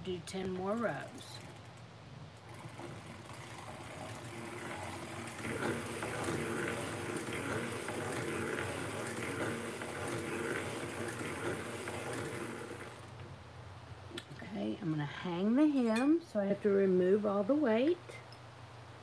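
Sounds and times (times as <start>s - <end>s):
knitting machine clattering: 2.4s - 13.2s.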